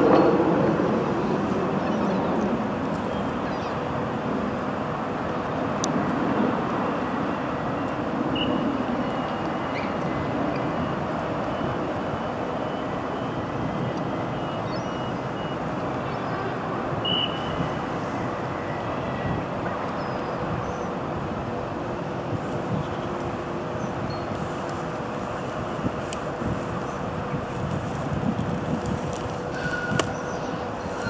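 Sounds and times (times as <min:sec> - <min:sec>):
electric train running noise: 0:00.0 - 0:31.0.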